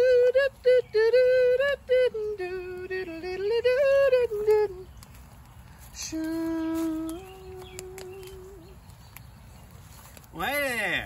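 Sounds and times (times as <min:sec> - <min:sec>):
high voice singing unaccompanied: 0:00.0 - 0:05.2, 0:05.9 - 0:09.0.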